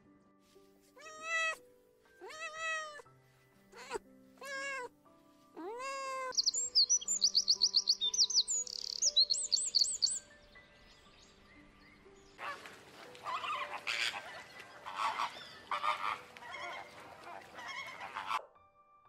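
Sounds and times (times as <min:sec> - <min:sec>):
cat meowing: 0:01.0 - 0:01.6, 0:02.2 - 0:03.0, 0:03.7 - 0:04.9, 0:05.6 - 0:06.4
wren trilling song: 0:05.8 - 0:18.4.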